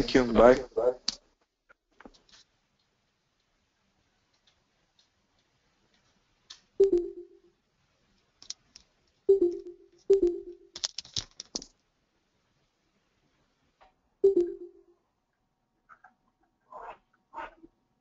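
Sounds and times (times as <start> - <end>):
low ringing tone: 6.8 - 7.5, 9.3 - 10.7, 14.2 - 15.0.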